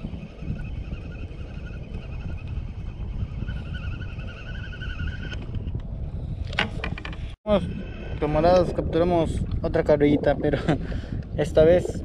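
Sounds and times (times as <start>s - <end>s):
fishing reel gears whining: 0.0s - 5.7s
wind rumble on microphone: 0.0s - 12.0s.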